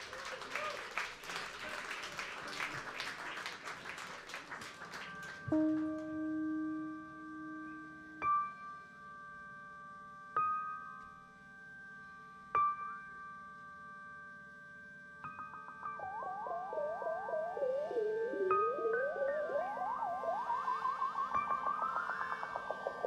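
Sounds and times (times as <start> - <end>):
audience applause: 0.0 - 5.5
electronic keyboard long notes: 5.2 - 23.0.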